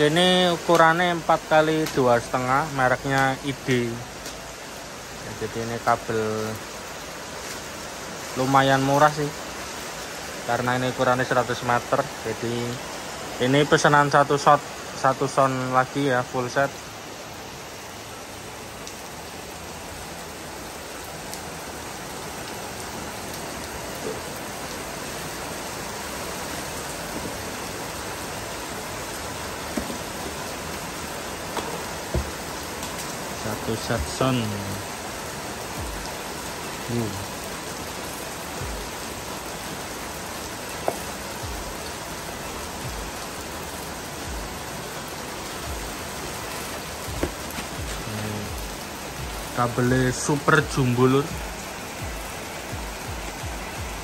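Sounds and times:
steady hiss: 0.0 - 54.0
soft low knocks on cardboard box: 31.6 - 32.4.

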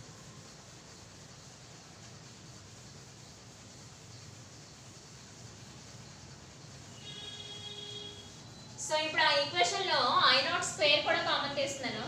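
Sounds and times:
duster rubbing on a blackboard: 0.0 - 8.6
room noise hiss: 0.0 - 12.0.

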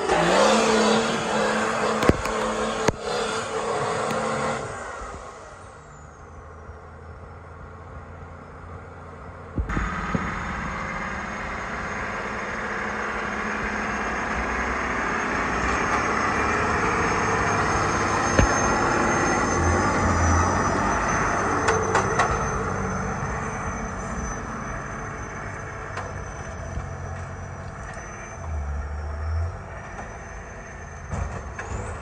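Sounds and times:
high whine: 0.0 - 31.4
truck engine running: 0.0 - 32.0.

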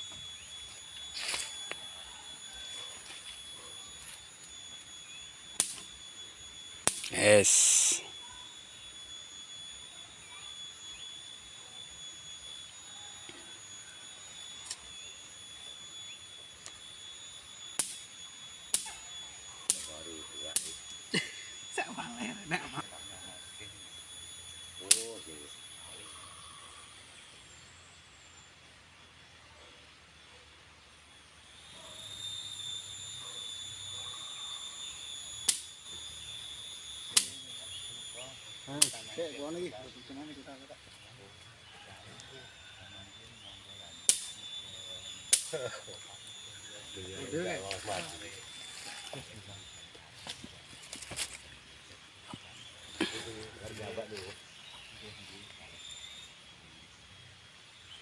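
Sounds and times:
high-pitched insect drone: 0.0 - 58.0
high-pitched whine: 0.0 - 58.0
sharp clicks: 44.0 - 44.5, 45.3 - 45.5.

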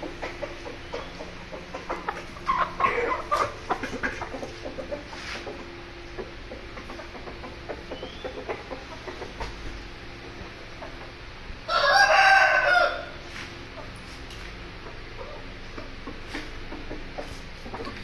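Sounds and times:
chickens clucking: 0.0 - 18.0.

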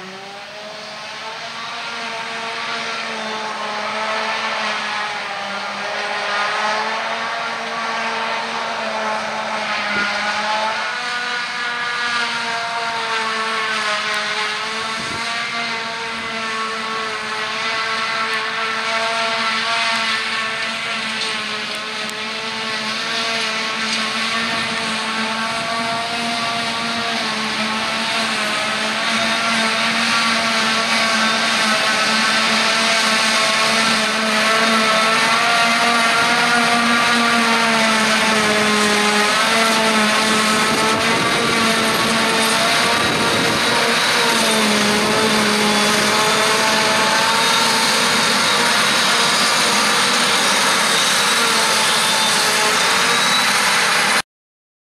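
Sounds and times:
forage harvester whine: 0.0 - 54.2
tractor engine running: 20.6 - 52.0.

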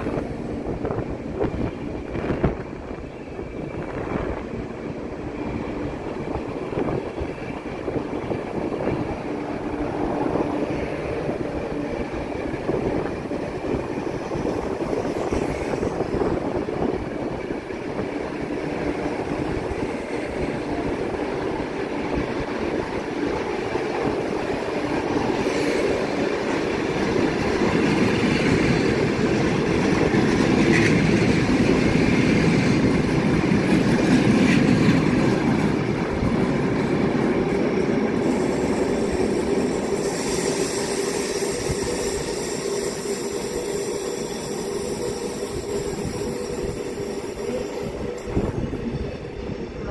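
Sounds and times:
train wheels rumbling over rail joints: 0.0 - 49.9.

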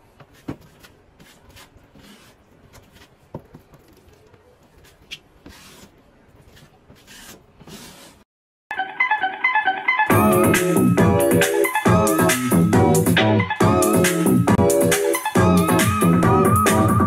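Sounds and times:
putty knife scraping wall: 0.2 - 3.1, 5.1 - 8.2
keyboard music: 8.7 - 17.0.

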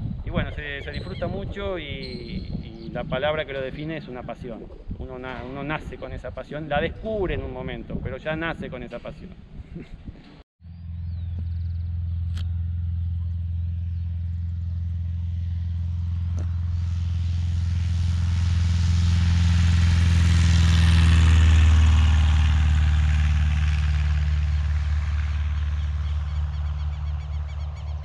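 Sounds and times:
light aircraft engine and propeller: 9.0 - 28.0.

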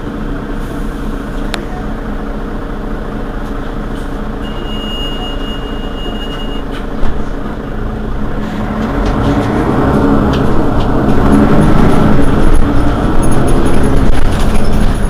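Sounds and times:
bus engine idling: 0.0 - 15.0
steady high beep: 4.4 - 6.6.

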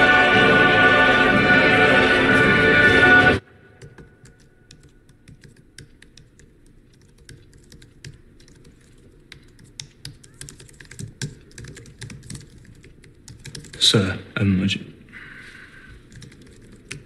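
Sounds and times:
laptop keyboard typing: 3.8 - 13.9, 16.0 - 17.0.

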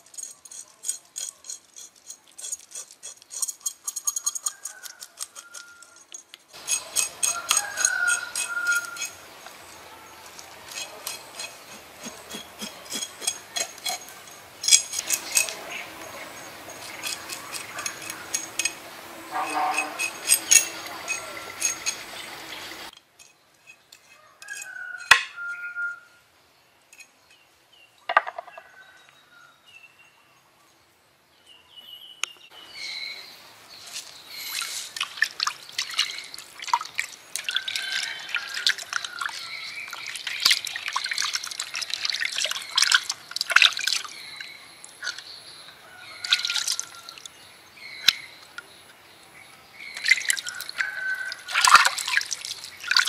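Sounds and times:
knife scraping fish: 0.2 - 9.2, 10.3 - 15.8, 16.6 - 18.8, 19.4 - 22.2
water splashing in bowl: 34.5 - 44.2, 46.2 - 47.3, 50.0 - 53.0
water dripping: 34.5 - 45.3, 46.2 - 47.4, 50.0 - 53.0.

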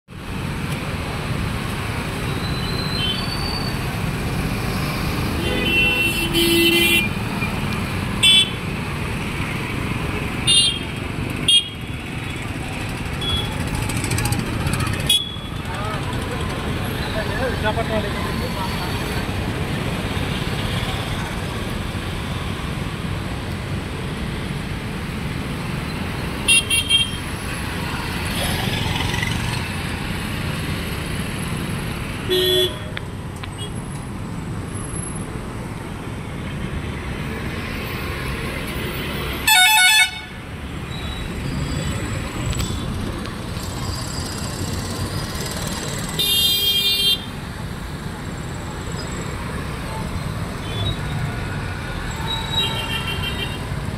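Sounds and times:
road traffic: 0.1 - 53.9
vehicle horns honking: 5.4 - 7.2, 8.2 - 8.6, 10.5 - 10.8, 11.5 - 11.8, 13.2 - 13.6, 15.1 - 15.5, 32.3 - 32.9, 39.4 - 40.4.

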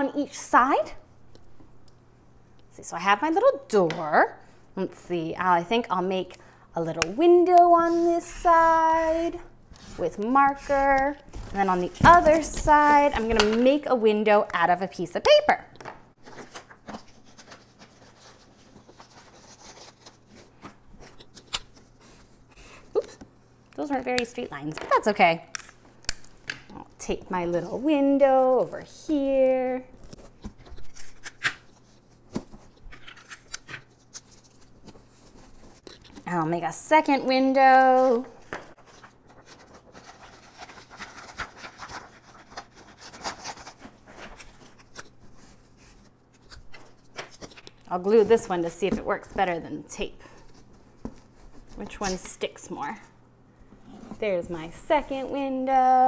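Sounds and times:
paper handling: 37.7 - 48.5.

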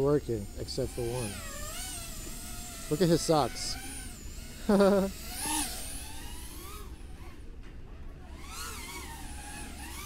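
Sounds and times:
quadcopter motors whining: 0.0 - 10.0.

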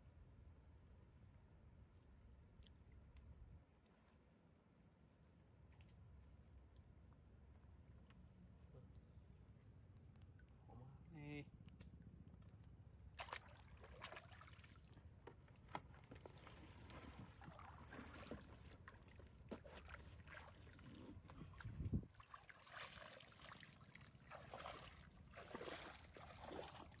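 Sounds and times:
water sloshing from wading: 11.7 - 27.0.

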